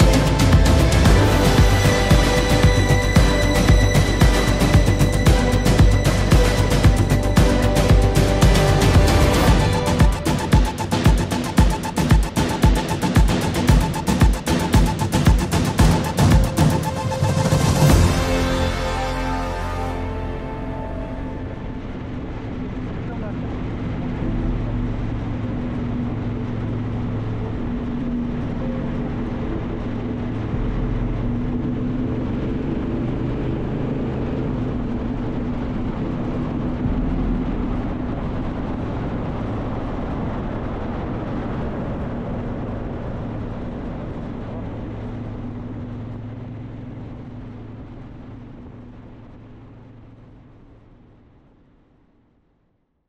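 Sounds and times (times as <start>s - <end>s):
road noise: 0.0s - 52.2s
vehicle engine running: 0.0s - 52.2s
wind noise: 21.2s - 49.9s.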